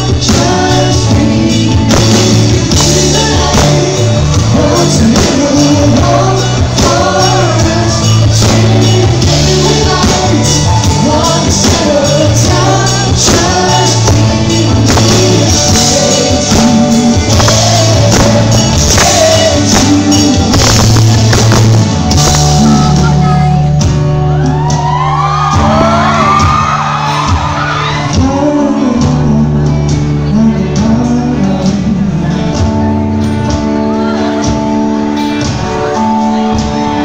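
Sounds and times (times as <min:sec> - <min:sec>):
live folk-pop band playing: 0:00.0 - 0:37.0
audience shouts and whoops: 0:24.2 - 0:28.2.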